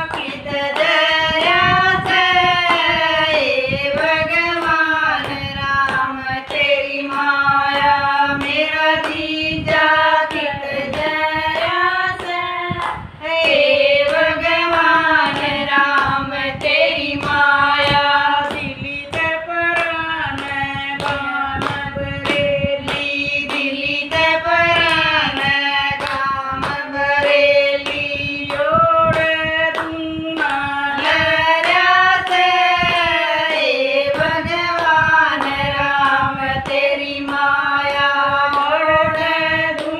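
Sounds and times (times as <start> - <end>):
rhythmic hand claps: 0.0 - 39.9
women singing folk song: 0.0 - 39.9.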